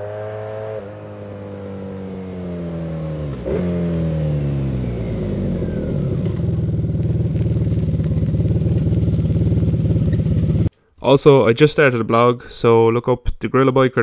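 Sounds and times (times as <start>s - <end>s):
motorcycle engine approaching: 0.0s - 10.7s.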